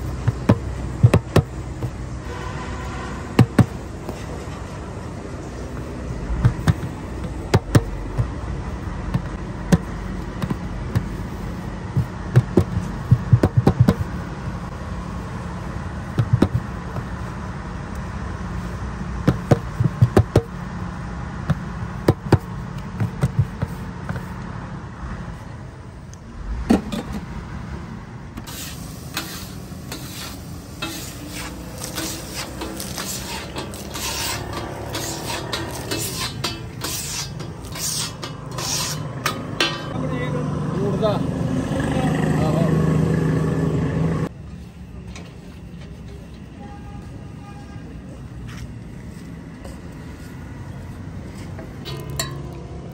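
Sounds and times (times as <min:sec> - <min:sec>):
oil sizzling and crackling: 0:28.4 - 0:40.0
scraping on hot iron griddle: 0:28.4 - 0:40.0.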